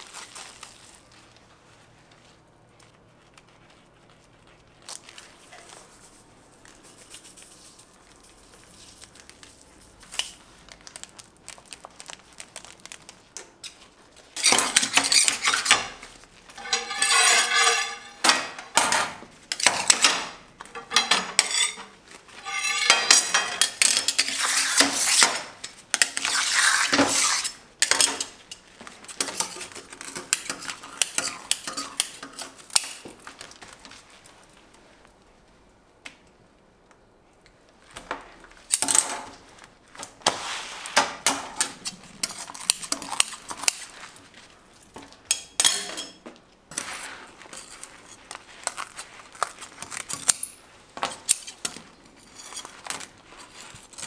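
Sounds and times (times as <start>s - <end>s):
metal scraper on steel table: 14.4s - 16.0s, 16.6s - 28.4s, 29.1s - 33.0s, 45.3s - 47.8s.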